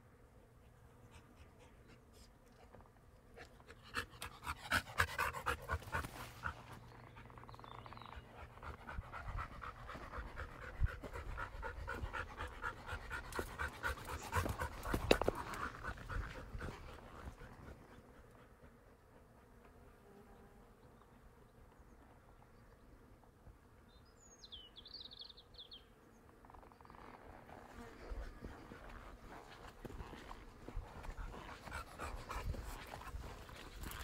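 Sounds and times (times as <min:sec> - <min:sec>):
dog panting: 0:03.4 - 0:07.4, 0:08.1 - 0:19.4, 0:28.8 - 0:34.0.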